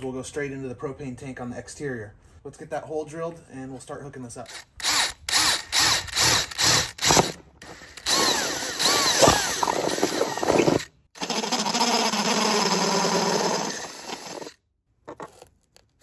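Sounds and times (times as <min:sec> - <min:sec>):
cordless drill boring through metal: 0:04.5 - 0:14.6.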